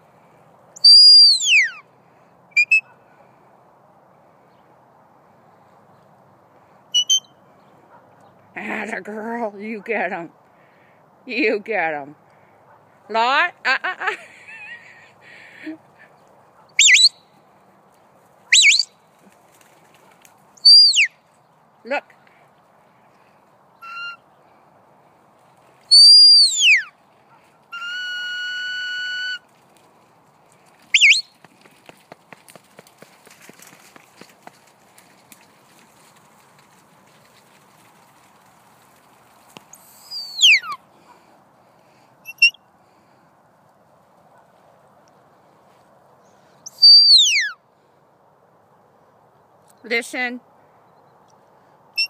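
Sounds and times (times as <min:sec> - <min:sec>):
high sliding whistle: 0:00.8 - 0:01.8, 0:02.6 - 0:02.8, 0:07.0 - 0:07.3, 0:16.8 - 0:17.2, 0:18.6 - 0:18.9, 0:20.6 - 0:21.1, 0:25.9 - 0:26.9, 0:27.7 - 0:29.4, 0:30.9 - 0:31.3, 0:40.0 - 0:40.8, 0:46.7 - 0:47.6
warbling whistle blasts: 0:00.8 - 0:01.8, 0:16.8 - 0:17.2, 0:18.6 - 0:18.9, 0:25.9 - 0:26.9, 0:30.9 - 0:31.3.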